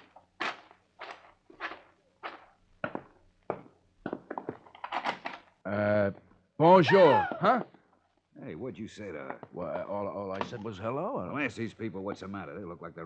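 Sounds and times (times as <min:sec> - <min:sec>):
walking footsteps: 0:00.0 - 0:04.8.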